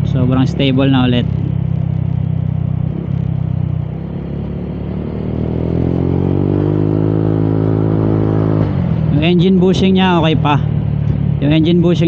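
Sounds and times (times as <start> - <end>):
scooter engine accelerating: 0.0 - 9.2.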